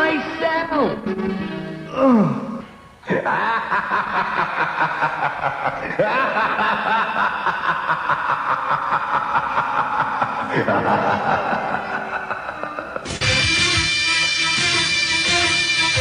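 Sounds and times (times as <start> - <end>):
people laughing hard: 3.1 - 13.4.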